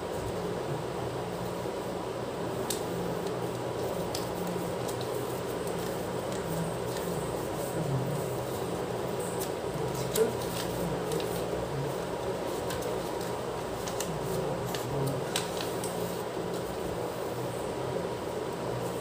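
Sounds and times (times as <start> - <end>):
steady background hum: 0.0 - 19.0
paper rustling and crinkling: 2.6 - 17.1.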